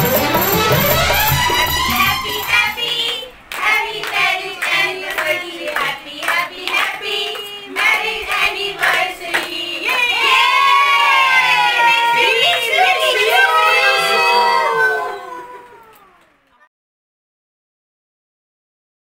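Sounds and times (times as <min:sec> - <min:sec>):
recorded music: 0:00.0 - 0:02.8
people clapping in time: 0:00.0 - 0:16.7
group of people singing: 0:00.1 - 0:14.8.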